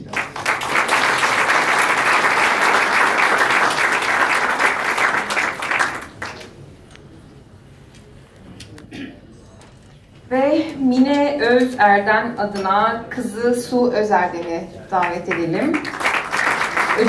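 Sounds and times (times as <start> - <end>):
audience applauding: 0.0 - 6.6, 15.0 - 17.0.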